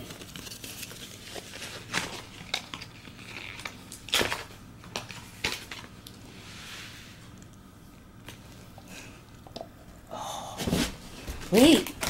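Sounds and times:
plastic packaging crackling and tearing: 0.0 - 6.2.

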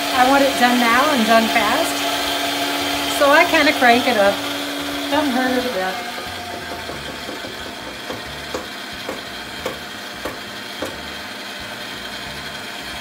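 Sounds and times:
stand mixer running: 0.0 - 13.0
regular knocking: 6.2 - 11.1.

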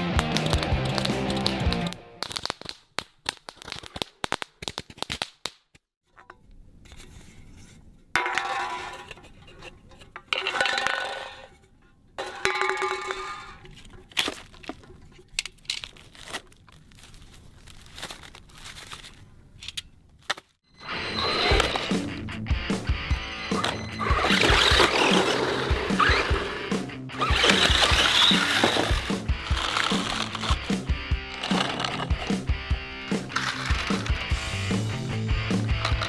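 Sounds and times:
cans and tubes handled on asphalt: 0.1 - 20.6, 23.5 - 26.5, 27.2 - 36.0
firework crackling: 0.2 - 5.4.

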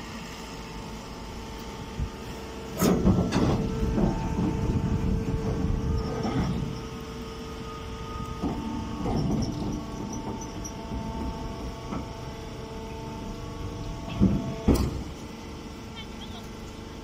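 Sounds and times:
machine knocking and rattling: 2.8 - 6.8, 8.4 - 12.2, 14.0 - 15.2.

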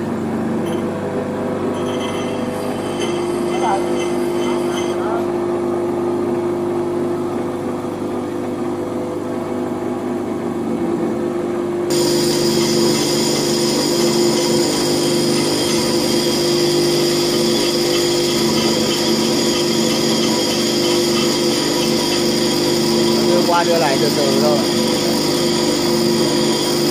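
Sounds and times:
bench grinder humming: 1.5 - 5.6, 11.9 - 26.9
metal grinding hiss: 1.8 - 5.2, 11.9 - 26.9.

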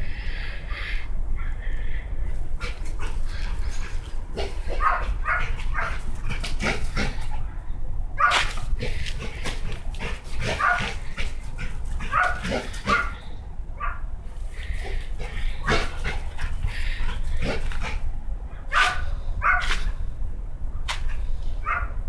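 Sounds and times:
steady low rumble: 0.0 - 22.0
dog barking and yipping: 2.6 - 7.4, 8.2 - 13.2, 13.8 - 14.0, 18.7 - 19.9, 21.6 - 22.0.

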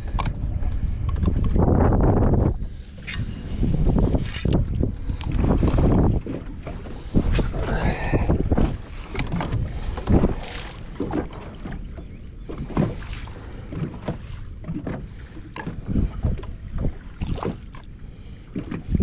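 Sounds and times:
wind buffeting microphone: 0.0 - 17.9, 18.5 - 19.0
water slapping against kayak hull: 3.7 - 17.9, 18.5 - 19.0.

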